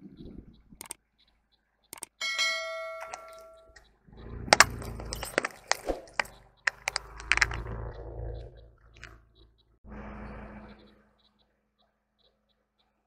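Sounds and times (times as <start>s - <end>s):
bell chime: 2.2s - 3.8s
plastic container crunching: 4.6s - 7.6s.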